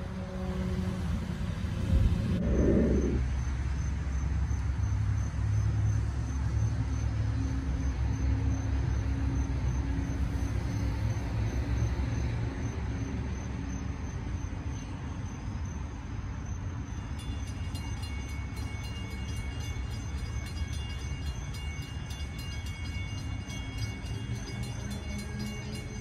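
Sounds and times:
low rumble: 0:01.5 - 0:03.5
crossing warning bells ringing: 0:16.8 - 0:26.0.

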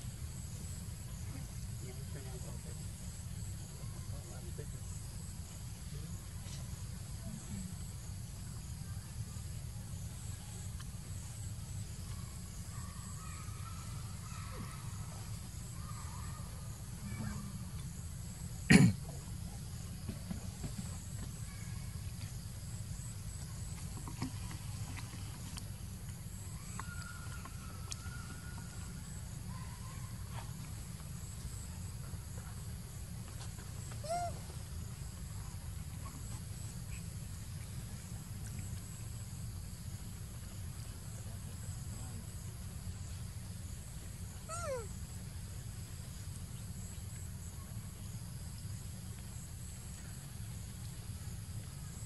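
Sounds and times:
low outdoor rumble: 0:00.0 - 0:52.0
baby monkey squeaks: 0:34.0 - 0:34.4, 0:44.5 - 0:44.9.

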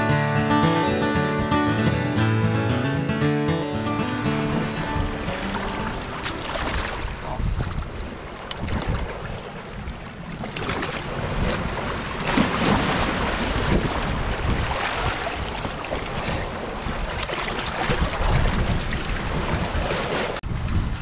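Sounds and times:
river water rushing: 0:00.0 - 0:08.5, 0:10.5 - 0:17.8
wind buffeting microphone: 0:04.5 - 0:21.0.

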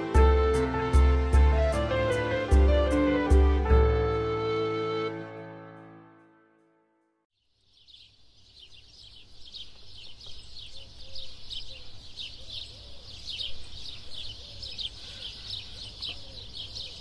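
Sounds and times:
music: 0:00.0 - 0:07.2
birds chirping: 0:07.4 - 0:17.0.

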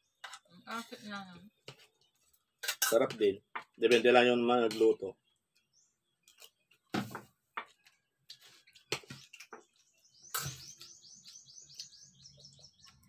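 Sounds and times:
bird chirping rapidly: 0:09.7 - 0:13.0.

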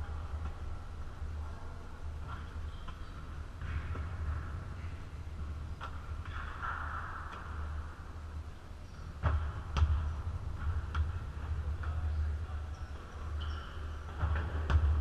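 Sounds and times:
basketball bouncing on floor: 0:09.2 - 0:11.2, 0:13.4 - 0:15.0.

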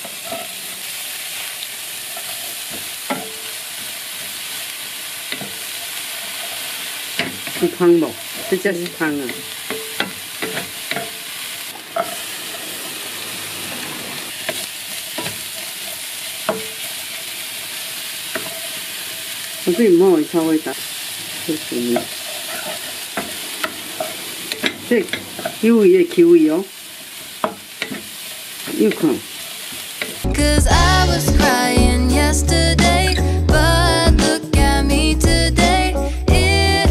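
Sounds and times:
food sizzling in oil: 0:00.0 - 0:36.8
wooden spatula scraping pan: 0:21.9 - 0:25.6.

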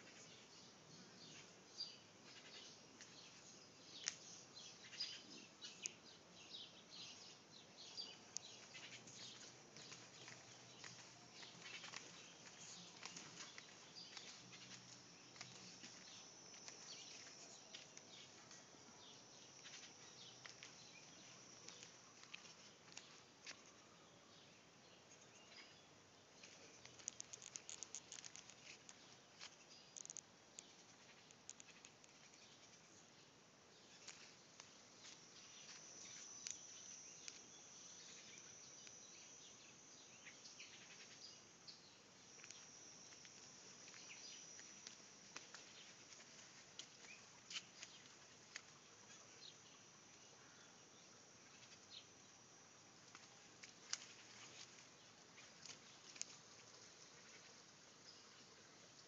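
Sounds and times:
bird chirps: 0:00.0 - 0:23.1
faint garden ambience: 0:00.0 - 0:59.0
high-pitched ticks: 0:26.8 - 0:29.0, 0:29.9 - 0:32.2.

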